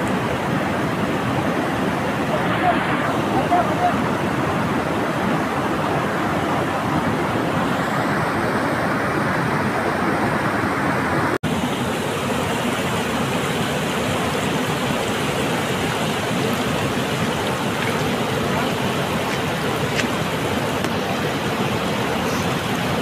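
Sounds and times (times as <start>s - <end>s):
river rushing over boulders: 0.0s - 23.0s.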